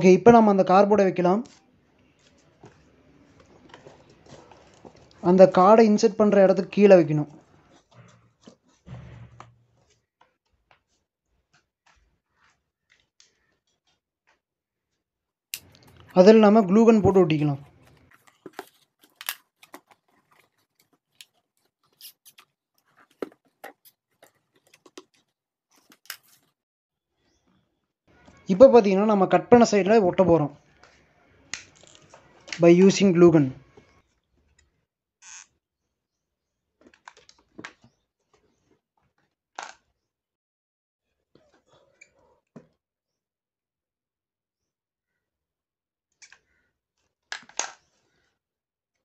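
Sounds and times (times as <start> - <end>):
cardboard box handling: 17.6 - 25.2.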